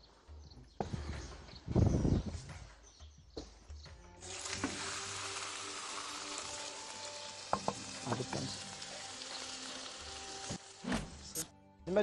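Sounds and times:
meat sizzling in a hot pan: 4.2s - 10.8s.

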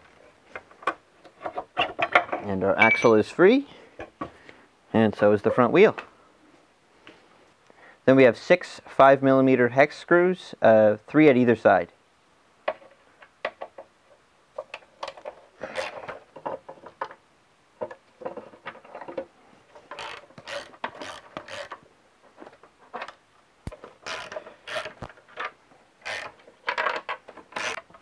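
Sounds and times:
hand ratchet clicking: 19.9s - 21.8s, 23.7s - 25.1s, 26.0s - 27.9s.

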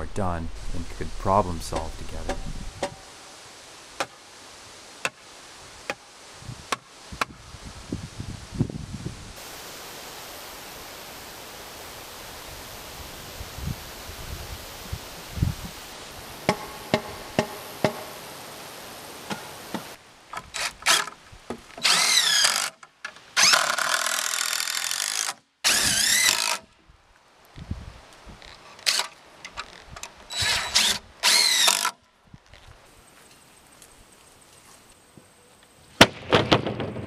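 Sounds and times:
sharp knocks: 1.7s - 3.0s, 16.4s - 18.2s
cordless drill driving screws: 21.8s - 22.8s, 23.4s - 26.6s, 30.3s - 32.0s.

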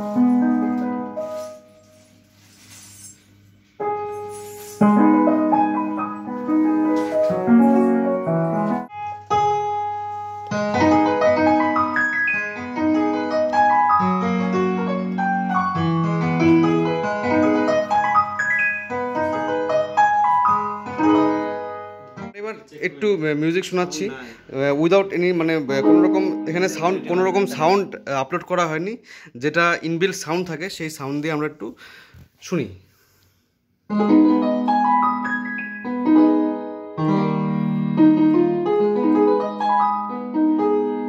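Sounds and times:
keyboard piano chords and melody: 0.0s - 2.5s, 3.7s - 22.4s, 25.1s - 28.1s, 33.9s - 41.0s.

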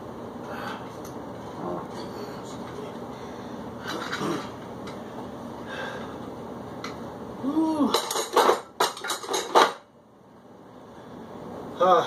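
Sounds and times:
person grunting: 7.4s - 8.0s.

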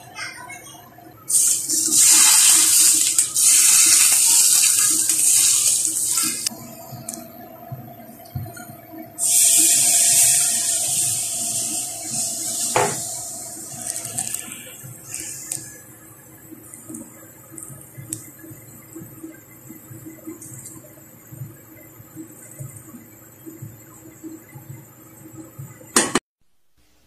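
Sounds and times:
hot oil sizzling: 1.3s - 6.5s, 9.1s - 15.9s.

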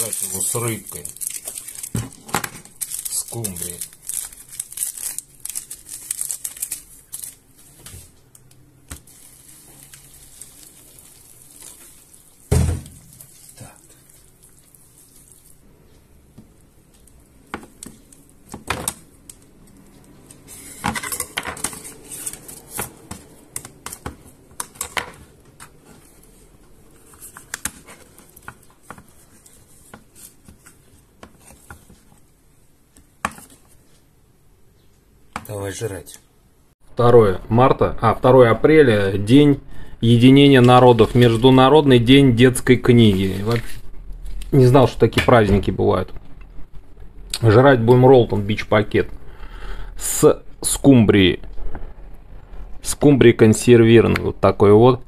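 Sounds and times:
sachet rustling: 0.0s - 8.1s, 9.0s - 15.6s.

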